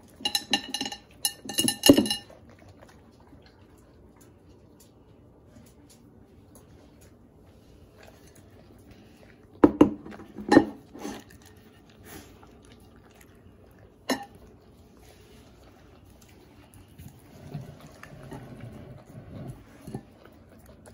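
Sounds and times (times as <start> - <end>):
dogs licking plates: 0.0 - 20.9
plates clattering on table: 0.2 - 2.3.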